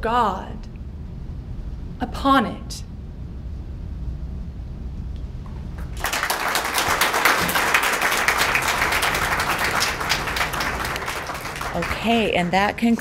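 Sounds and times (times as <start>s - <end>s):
low room hum: 0.0s - 13.0s
audience clapping: 5.8s - 13.0s.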